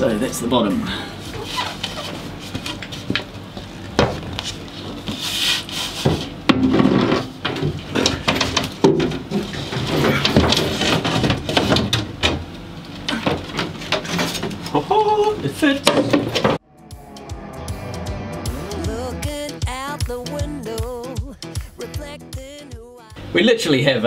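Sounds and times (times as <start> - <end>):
boards scraping against wood: 4.4 - 7.3.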